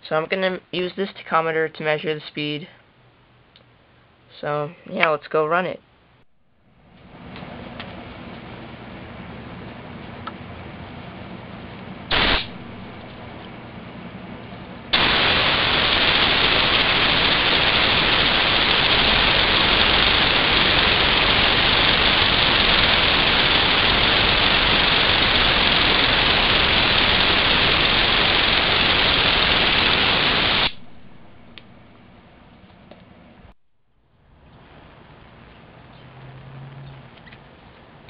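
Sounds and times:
compressed air hissing: 0:12.1 - 0:13.0, 0:14.9 - 0:30.8.

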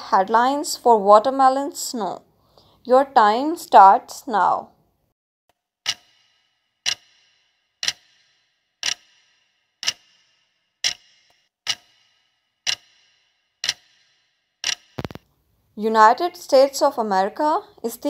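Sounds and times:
clock ticking: 0:05.8 - 0:15.2.

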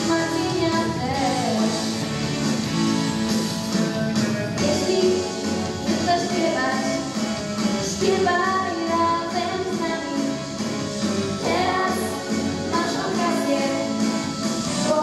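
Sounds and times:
girl singing into microphone: 0:00.0 - 0:01.8, 0:07.9 - 0:10.4, 0:11.4 - 0:13.9
instrumental accompaniment: 0:00.0 - 0:15.0.

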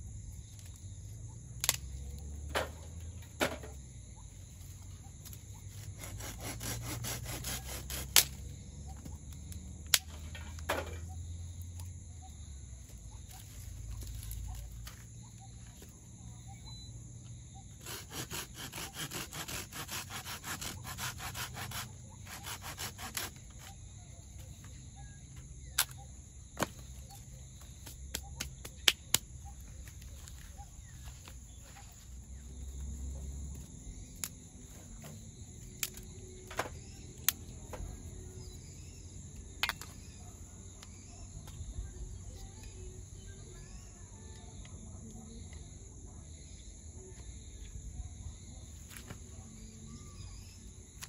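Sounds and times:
insects chirring: 0:00.0 - 0:51.0
knife scraping dry wood: 0:05.6 - 0:08.4, 0:17.7 - 0:23.7.

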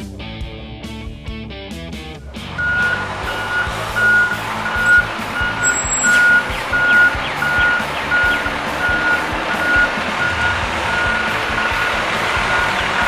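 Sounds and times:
background music with beat: 0:00.0 - 0:13.0
backup alarm beeping: 0:02.6 - 0:13.0.

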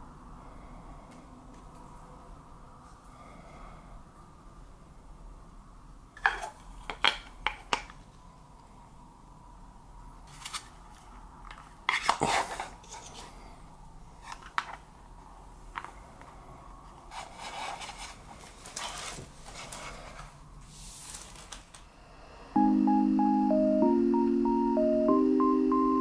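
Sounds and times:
packaging rustling: 0:17.3 - 0:20.4, 0:21.0 - 0:21.8
music: 0:22.6 - 0:26.0.

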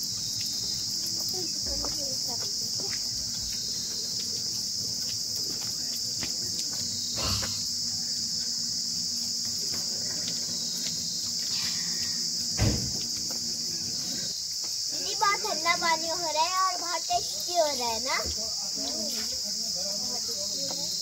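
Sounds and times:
high-pitched insect chorus: 0:00.0 - 0:21.0
dull thump: 0:12.6 - 0:13.2.

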